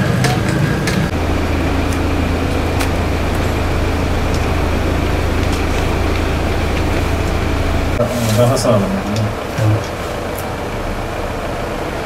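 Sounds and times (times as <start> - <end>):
low mechanical hum: 0.0 - 12.0
rushing background noise: 0.0 - 12.0.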